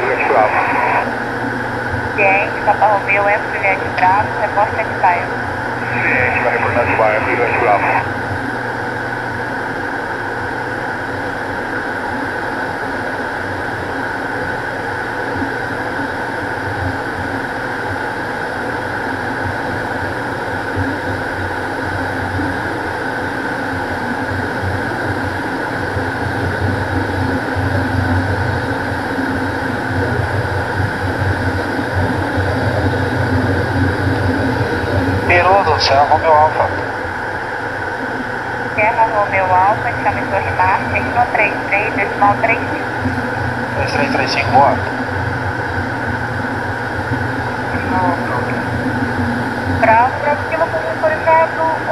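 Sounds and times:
steady high tone: 0:00.0 - 0:08.3, 0:32.0 - 0:45.3, 0:47.5 - 0:51.9
turboprop engines droning: 0:00.0 - 0:51.9.

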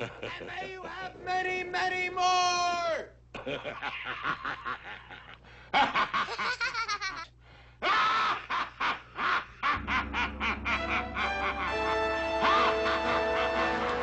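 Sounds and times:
cartoon voices laughing: 0:03.4 - 0:14.0
low musical accompaniment: 0:09.8 - 0:14.0.

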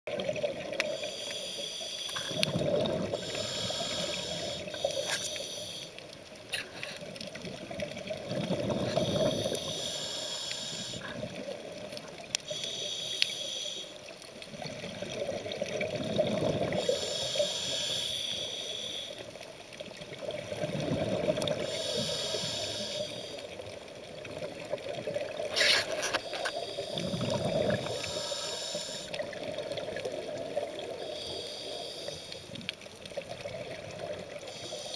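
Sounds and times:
faint clicks: 0:00.7 - 0:02.6, 0:09.0 - 0:14.5
regulator hiss: 0:00.9 - 0:02.5, 0:03.1 - 0:06.0, 0:08.9 - 0:11.0, 0:12.4 - 0:14.1, 0:16.7 - 0:19.3, 0:21.6 - 0:23.5, 0:27.8 - 0:29.2, 0:31.0 - 0:32.6, 0:34.4 - 0:34.9
exhaled air bubbling: 0:02.1 - 0:12.6, 0:14.4 - 0:17.9, 0:19.9 - 0:31.2.

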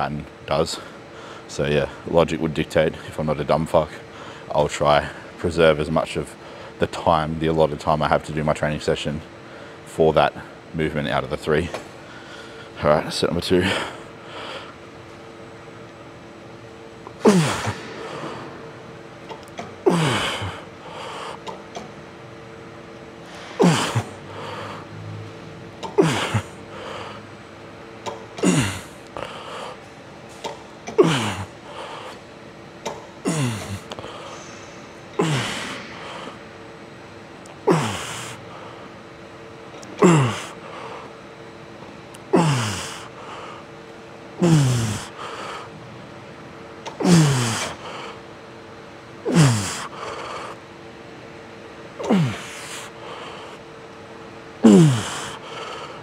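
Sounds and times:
faint steady hum: 0:00.0 - 0:56.0
man groaning while exhaling hard: 0:23.6 - 0:24.2, 0:37.7 - 0:38.4, 0:40.0 - 0:40.6, 0:44.4 - 0:45.2, 0:47.0 - 0:47.7, 0:52.0 - 0:52.8, 0:54.6 - 0:55.4.

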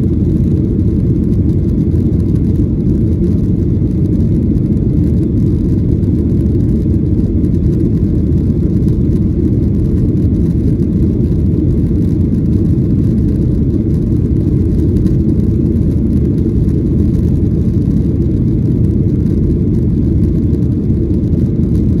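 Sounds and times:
jet engine cabin rumble: 0:00.0 - 0:22.0.

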